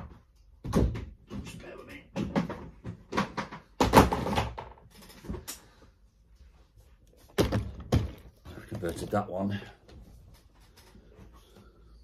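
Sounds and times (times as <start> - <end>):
plastic toys knocking and clattering: 0.0 - 5.7, 7.3 - 9.2.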